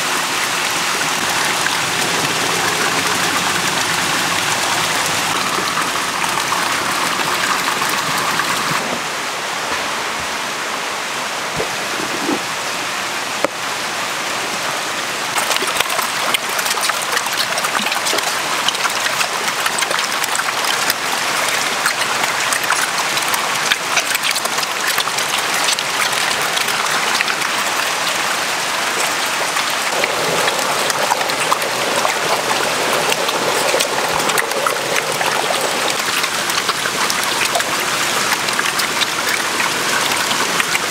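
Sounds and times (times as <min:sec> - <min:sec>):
water splashing and churning: 0:00.0 - 0:10.1, 0:15.2 - 0:40.9
eels thrashing in water: 0:15.4 - 0:40.9.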